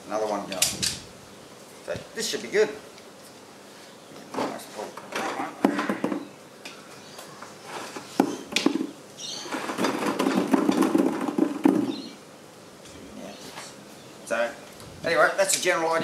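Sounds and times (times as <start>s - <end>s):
wooden dowels scraping wire mesh: 9.4s - 12.1s
plastic balls dropping into bucket: 9.5s - 12.0s.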